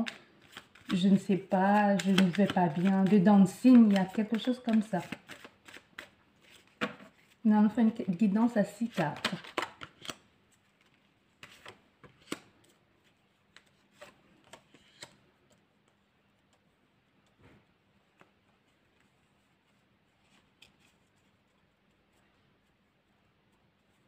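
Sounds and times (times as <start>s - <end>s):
cards clicking on stone floor: 0.0s - 7.0s, 8.9s - 10.2s, 10.8s - 12.7s, 13.5s - 15.6s.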